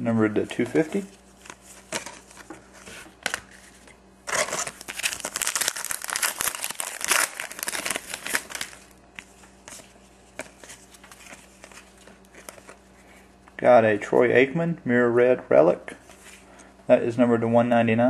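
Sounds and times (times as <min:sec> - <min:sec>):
cards rustling and clicking: 0:00.4 - 0:12.9
foil wrapper tearing and crinkling: 0:04.3 - 0:09.0.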